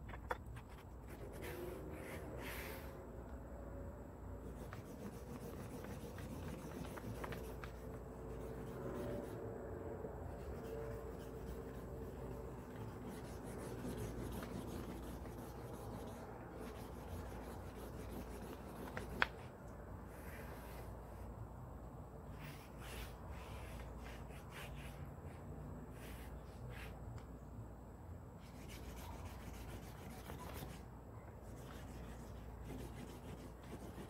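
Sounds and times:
hand tool rubbing along leather: 4.4 - 9.4, 10.4 - 19.2.

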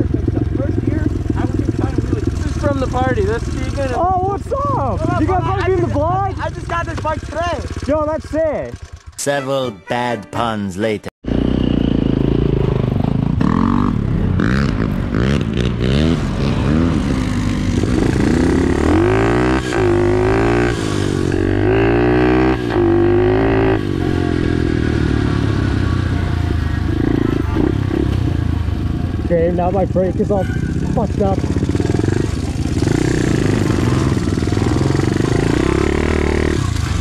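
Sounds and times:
pit bike engine revving: 0.0 - 9.2, 11.2 - 37.0.

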